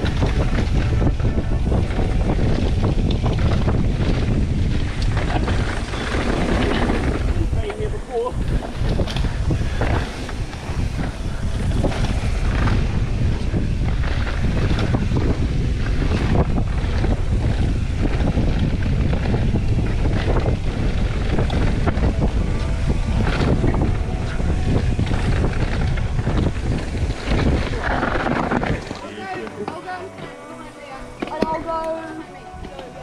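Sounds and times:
wind rushing on microphone: 0.0s - 29.6s
bike clicks and rattles: 0.0s - 30.4s
tyres rolling on dirt: 0.0s - 31.8s.

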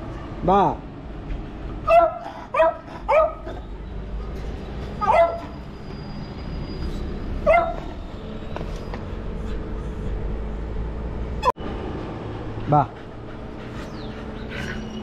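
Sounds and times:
dog barking: 1.8s - 3.6s, 5.0s - 5.5s, 7.4s - 7.9s.

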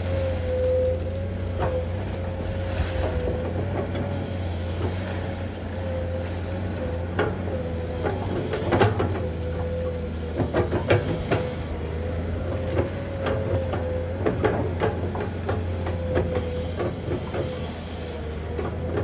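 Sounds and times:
excavator engine running: 0.0s - 19.0s
hydraulic whine: 0.0s - 19.0s
excavator bucket clunking: 7.1s - 17.8s.

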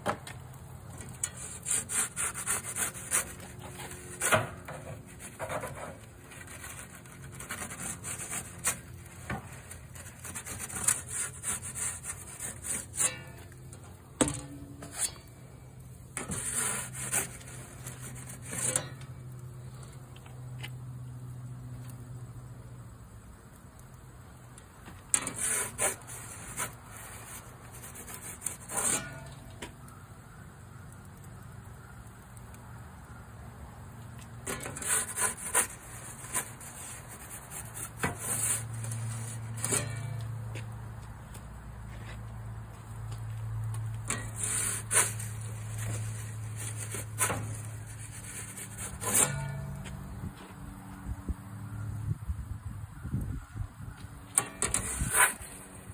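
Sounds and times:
metal peel scraping stone: 1.0s - 19.4s, 25.1s - 29.8s, 34.4s - 40.4s, 44.0s - 50.0s, 54.4s - 55.9s.

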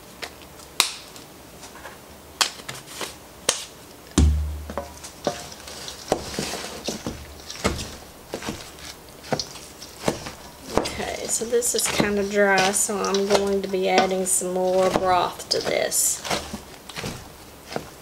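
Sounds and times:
heavy thump: 4.2s - 5.2s
wooden spoon stirring in metal bowl: 4.2s - 18.0s.

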